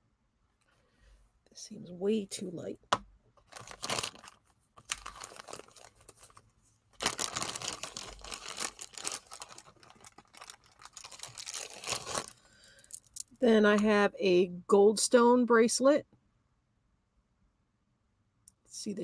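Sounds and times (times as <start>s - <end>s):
plastic bag crinkling: 3.4s - 13.2s.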